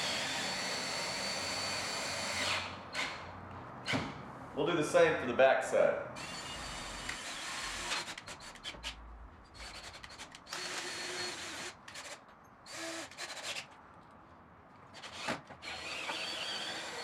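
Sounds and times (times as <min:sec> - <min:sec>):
cordless drill whining: 0:00.0 - 0:04.0, 0:06.2 - 0:09.0, 0:09.6 - 0:13.7, 0:15.0 - 0:17.0.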